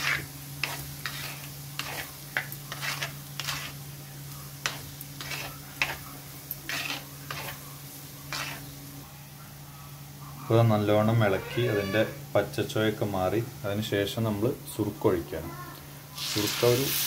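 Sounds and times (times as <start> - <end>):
spoon scraping clay pot: 0.0 - 3.8, 4.6 - 6.0, 6.7 - 7.6, 8.3 - 8.7
faint sizzle of frying: 0.0 - 17.0.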